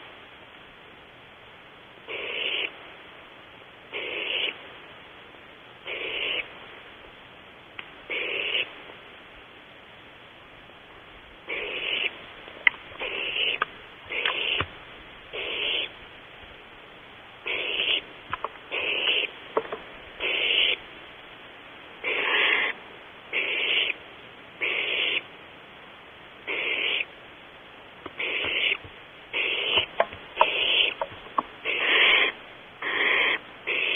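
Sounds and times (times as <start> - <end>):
owl nestlings hissing calls: 2.1 - 2.8, 3.9 - 4.6, 5.8 - 6.5, 8.1 - 8.7, 11.4 - 14.7, 15.3 - 16.0, 17.4 - 19.4, 20.2 - 20.9, 22.0 - 24.0, 24.6 - 25.3, 26.4 - 27.2, 28.0 - 33.9.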